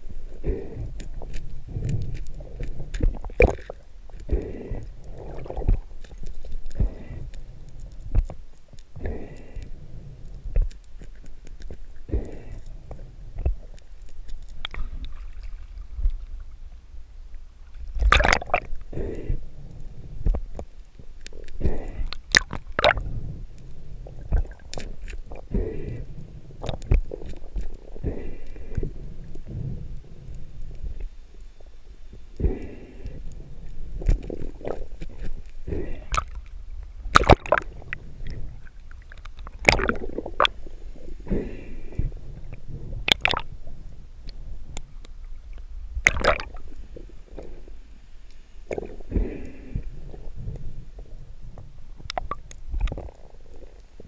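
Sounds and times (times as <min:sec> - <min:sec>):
water sloshing and splashing: 0:14.6 - 0:16.3, 0:17.8 - 0:18.7, 0:22.3 - 0:23.0, 0:37.1 - 0:40.7, 0:43.1 - 0:43.6, 0:46.0 - 0:47.5.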